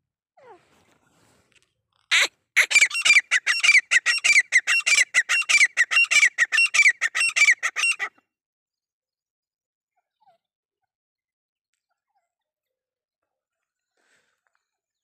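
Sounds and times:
partridge squawking call: 2.1s - 8.1s.

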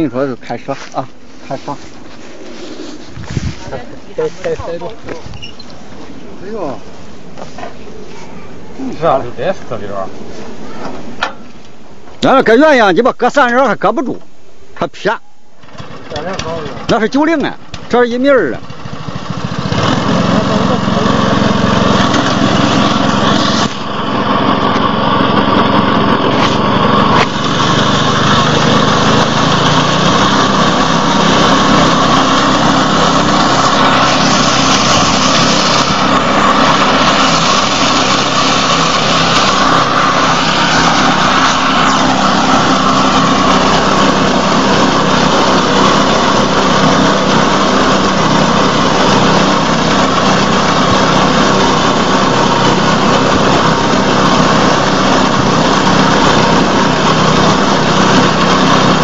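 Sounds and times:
reaper machine engine running: 15.6s - 59.0s.

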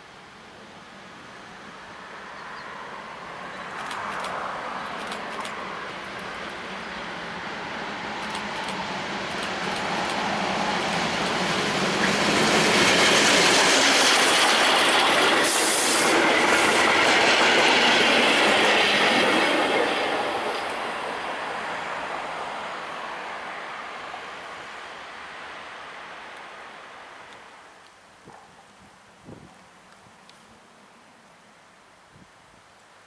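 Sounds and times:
train wheels on rails: 3.7s - 23.6s
steam hiss: 7.5s - 25.6s.

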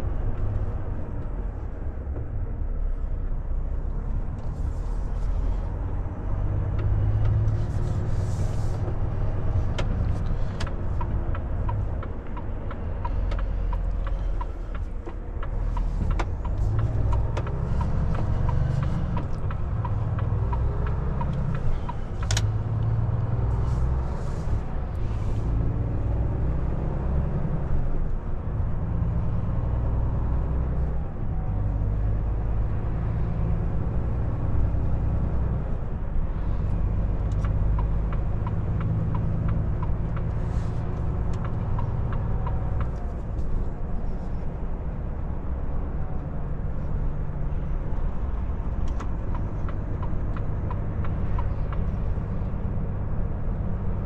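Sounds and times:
truck diesel engine rumble: 0.0s - 54.0s
turn indicator ticking: 8.8s - 25.0s, 36.8s - 43.5s, 48.4s - 52.6s.

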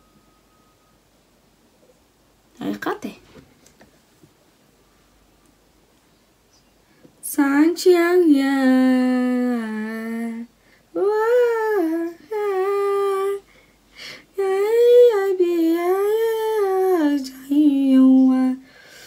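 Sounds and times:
woman singing unaccompanied: 7.2s - 13.5s, 14.3s - 18.8s.

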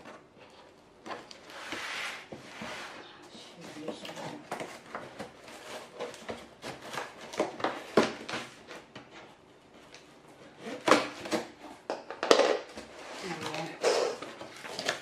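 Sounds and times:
scissors cutting packing tape: 13.4s - 15.0s.

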